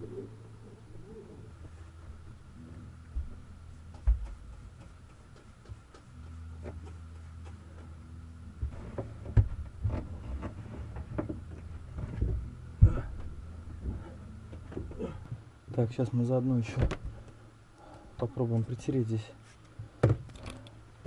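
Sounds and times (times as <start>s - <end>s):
low steady hum: 0.0s - 21.0s
knocks and clunks of objects: 3.2s - 8.0s, 8.6s - 15.4s, 16.7s - 17.4s, 19.8s - 20.7s.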